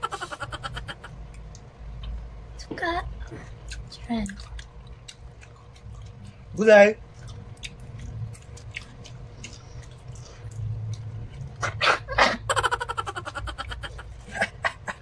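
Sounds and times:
woman's muffled laugh: 0.0s - 1.1s, 12.1s - 15.0s.

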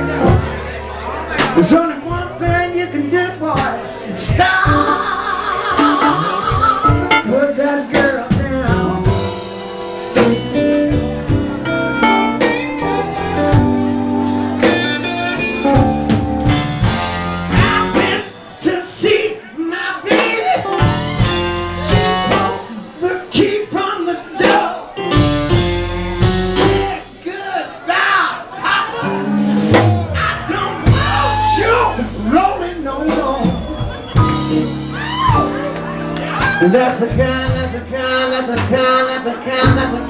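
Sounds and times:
blues band playing: 0.0s - 40.0s
man singing into a microphone: 1.5s - 5.1s, 6.0s - 9.2s, 17.7s - 20.7s, 22.0s - 25.0s, 36.4s - 40.0s.

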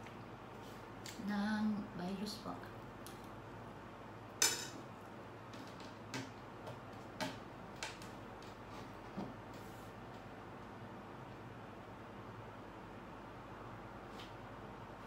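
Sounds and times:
cutlery clinking on plate: 4.4s - 4.8s.

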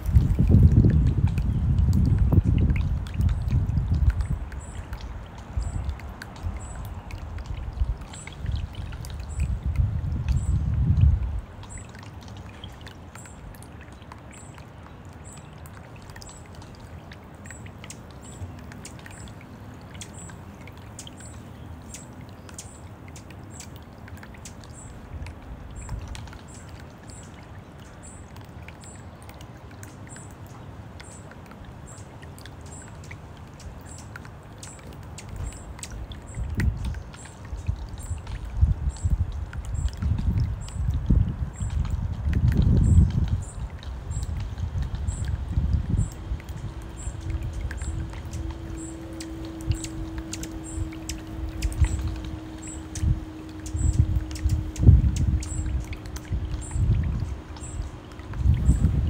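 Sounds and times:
fountain water splashing: 0.0s - 59.0s
low rumble: 41.3s - 59.0s.

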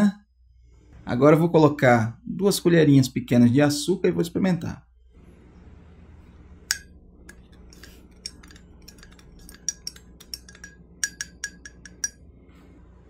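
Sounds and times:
teaspoon clinking against ceramic mug: 6.7s - 12.2s.

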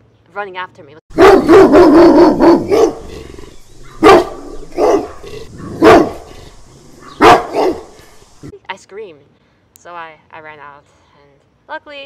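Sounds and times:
dog barking: 1.1s - 3.2s, 3.8s - 8.2s.

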